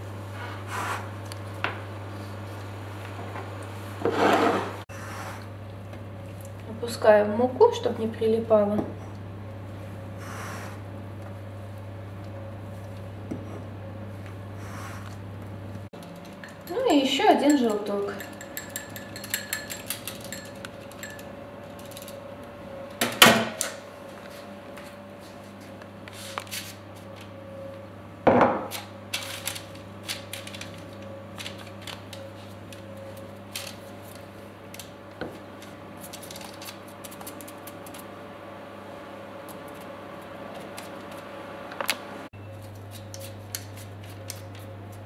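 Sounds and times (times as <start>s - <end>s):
fork clinking against ceramic bowl: 16.4s - 21.3s.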